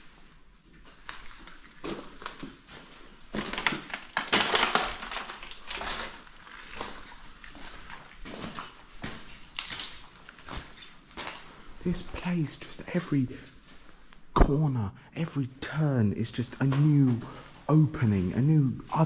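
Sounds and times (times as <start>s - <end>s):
footsteps crunching over debris: 0.0s - 12.3s.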